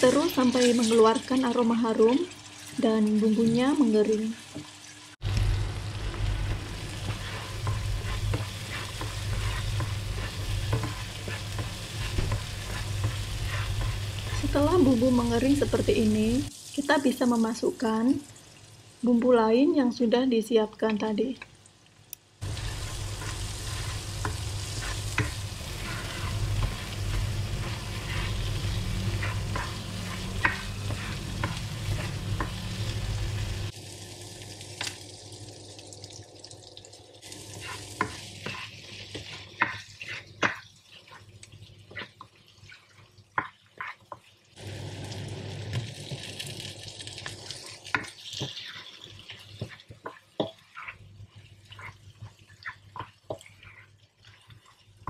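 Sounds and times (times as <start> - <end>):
paste sizzling in oil: 0.0 - 19.8, 22.4 - 36.1, 37.2 - 55.0
low hum: 5.2 - 8.0
spatula scraping a wok: 6.1 - 16.0, 22.4 - 33.7, 37.3 - 44.2, 47.2 - 55.0
spatula tapping a pan: 6.5 - 14.4, 23.2 - 32.8.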